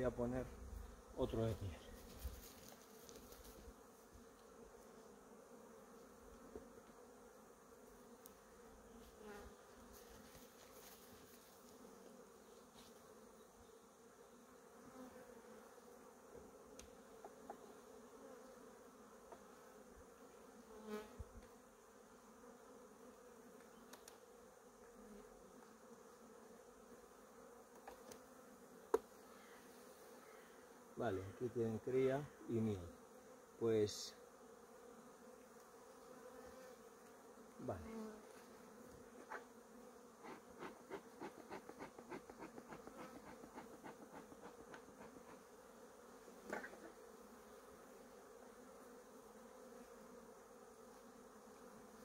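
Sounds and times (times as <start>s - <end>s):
bees humming: 32.3s - 52.0s.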